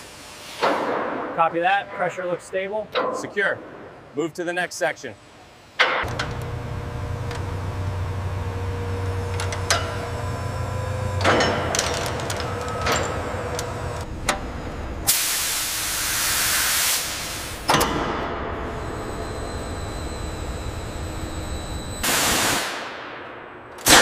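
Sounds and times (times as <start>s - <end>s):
industrial machinery humming: 1.3s - 23.2s
pressure release hissing: 15.1s - 17.6s.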